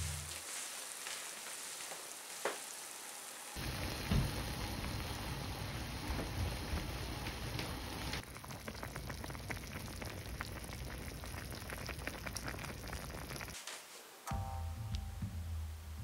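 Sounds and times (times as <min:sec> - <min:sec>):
music: 0:00.0 - 0:00.4, 0:14.2 - 0:16.0
broth bubbling in a pot: 0:00.0 - 0:13.6.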